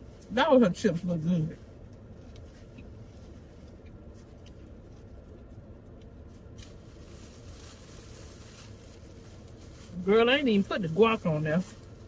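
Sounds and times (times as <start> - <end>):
low hum inside car cabin: 0.0 - 12.0
rustling food and paper napkin: 0.0 - 12.0.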